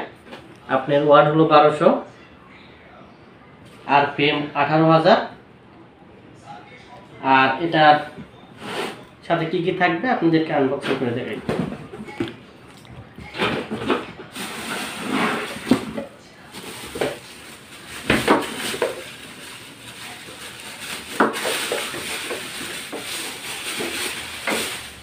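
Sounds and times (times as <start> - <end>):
plastic bag rustling: 13.2 - 25.0.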